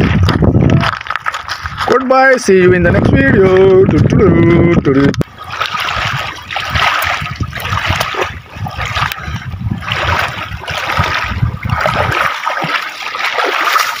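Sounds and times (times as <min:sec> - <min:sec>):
feet wading through shallow water: 0:00.0 - 0:02.1, 0:03.0 - 0:14.0.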